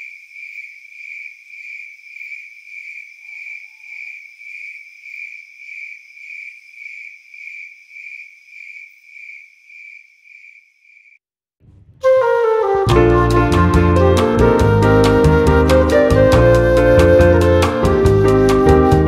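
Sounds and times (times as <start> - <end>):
crickets chirping: 0.0 - 11.2.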